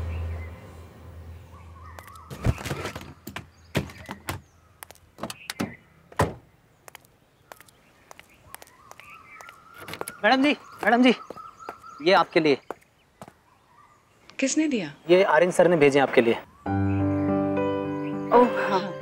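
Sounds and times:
car boot thunks and knocks: 2.3s - 4.5s, 5.2s - 6.4s.

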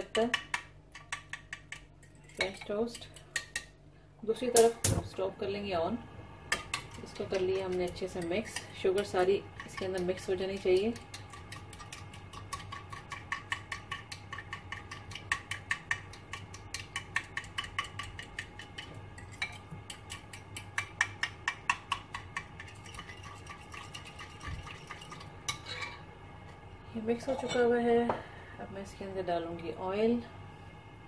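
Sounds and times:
utensil beating batter in glass bowl: 0.0s - 3.7s, 6.5s - 25.6s.

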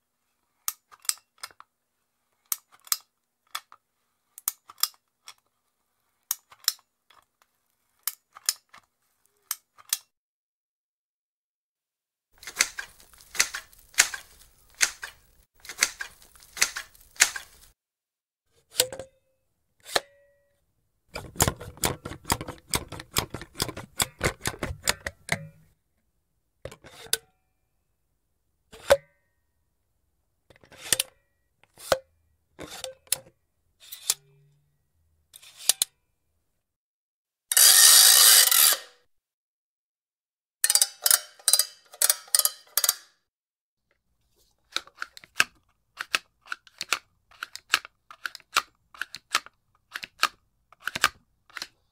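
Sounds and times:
caulking gun clicking: 12.4s - 17.5s.

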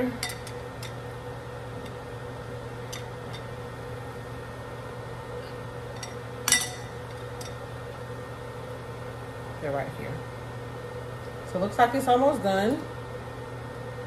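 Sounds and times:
steady low hum: 0.0s - 14.0s
glass bowl clinking: 5.9s - 7.6s.

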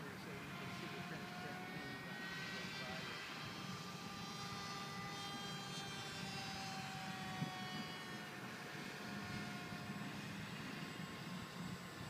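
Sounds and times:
electric motor and propeller whine: 0.0s - 12.0s.

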